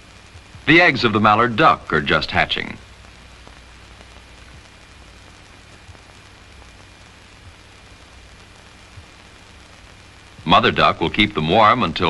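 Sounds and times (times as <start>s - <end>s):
film soundtrack hiss and hum: 0.0s - 12.0s.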